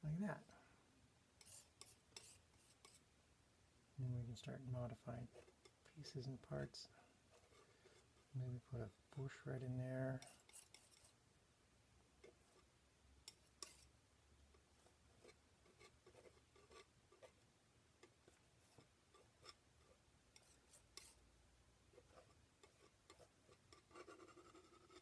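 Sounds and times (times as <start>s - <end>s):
painting tools clicking and scraping: 10.2s - 11.2s.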